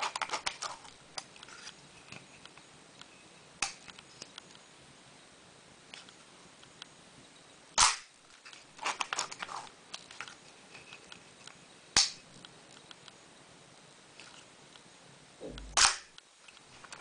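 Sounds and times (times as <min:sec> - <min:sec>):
camera shutter snap: 0:15.6 - 0:16.2.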